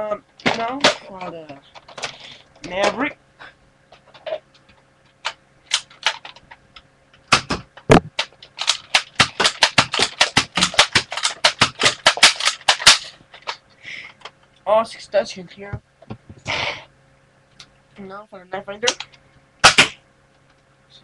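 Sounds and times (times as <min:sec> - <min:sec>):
heavy plastic thump: 0:07.3 - 0:08.3
toy blaster plastic clicks: 0:08.2 - 0:13.6.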